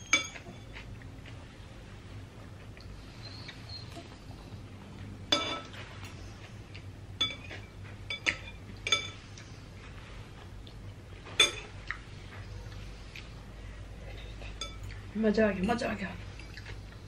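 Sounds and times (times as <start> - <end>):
cutlery clinking on a bowl: 0.0 - 0.9, 5.3 - 5.8, 7.2 - 9.2, 11.3 - 11.8, 14.1 - 15.0.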